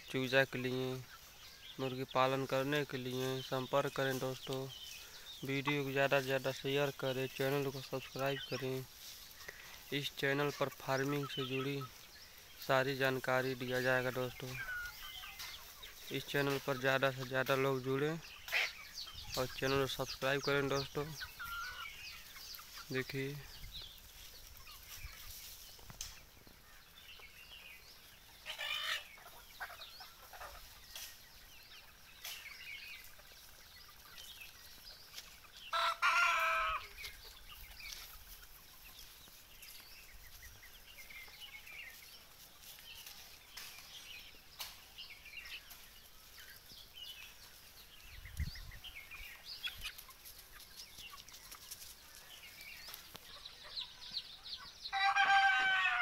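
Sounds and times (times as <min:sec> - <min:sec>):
chickens clucking: 0:00.0 - 0:56.0
chicks peeping: 0:00.0 - 0:56.0
rooster crowing: 0:54.9 - 0:56.0.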